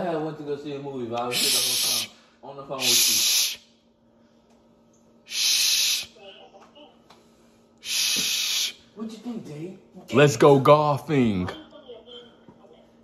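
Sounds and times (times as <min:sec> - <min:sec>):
person hissing through teeth: 0:01.3 - 0:02.1, 0:02.8 - 0:03.6, 0:05.3 - 0:06.2, 0:07.8 - 0:08.8.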